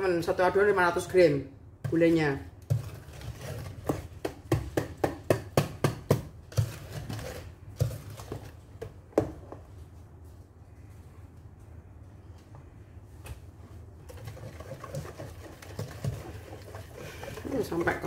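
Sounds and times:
whisk clattering against metal pot: 14.1s - 18.0s.

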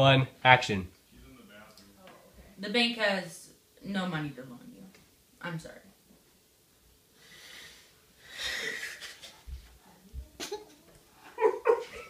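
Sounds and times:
boy stifling laughter: 10.4s - 12.0s.

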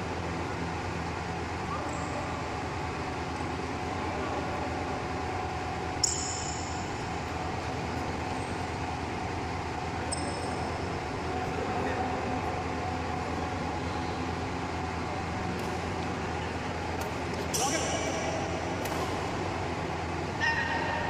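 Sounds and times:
sports hall hum: 0.0s - 21.0s
racket hitting shuttlecock: 17.0s - 19.4s.

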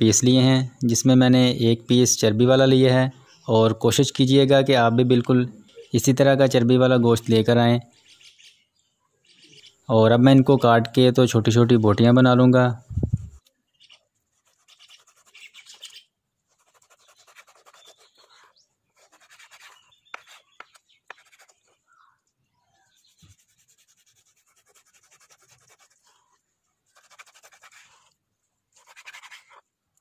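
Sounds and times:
knife sawing through meat: 14.4s - 15.4s, 16.5s - 20.6s, 23.0s - 29.6s.

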